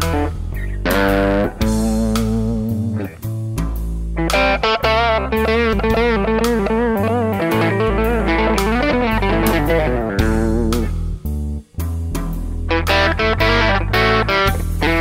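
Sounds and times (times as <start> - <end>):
bass guitar: 0.0 - 15.0
drums: 0.0 - 15.0
electric lead guitar melody: 0.0 - 15.0.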